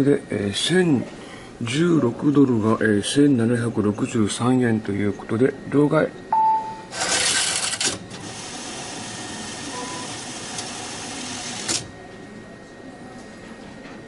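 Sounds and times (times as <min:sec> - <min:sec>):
machine mechanism whirring: 0:06.9 - 0:12.0.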